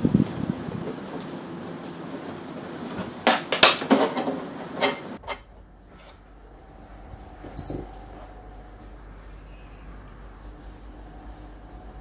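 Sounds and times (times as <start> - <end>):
light metallic clink: 7.6 - 7.9.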